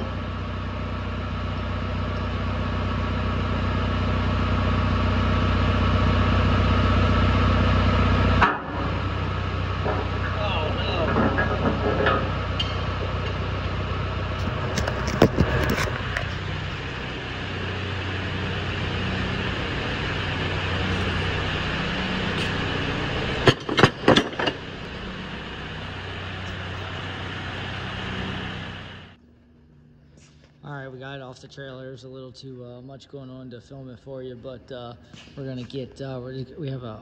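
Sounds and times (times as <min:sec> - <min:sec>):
tractor engine running: 0:00.0 - 0:29.2
sharp knocks: 0:23.4 - 0:24.8.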